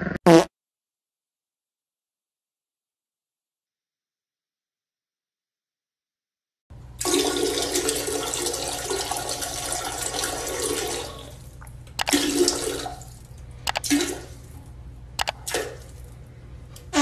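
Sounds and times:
toilet flushing: 0:06.8 - 0:14.6.

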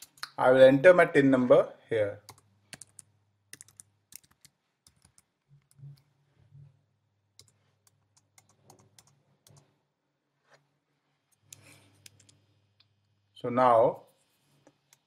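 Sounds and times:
computer keyboard clicks: 0:02.3 - 0:06.0.

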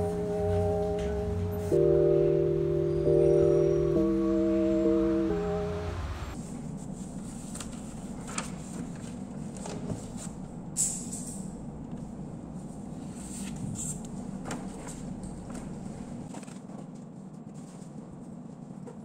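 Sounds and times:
background music: 0:00.0 - 0:06.4
paper rustling: 0:06.4 - 0:10.3.

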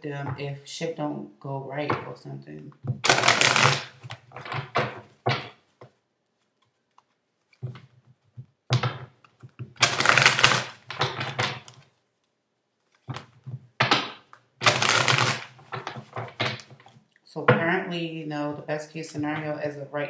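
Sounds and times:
cards being shuffled: 0:03.0 - 0:17.0.

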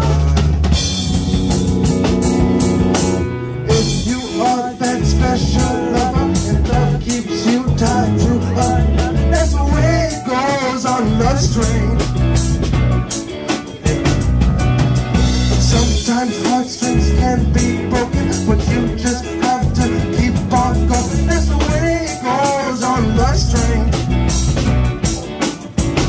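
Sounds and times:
rock band playing: 0:00.0 - 0:26.0.

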